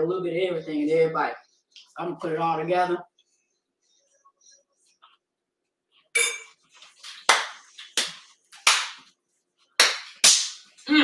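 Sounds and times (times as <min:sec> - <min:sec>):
metal utensils clanking on cookware: 0:06.2 - 0:06.5.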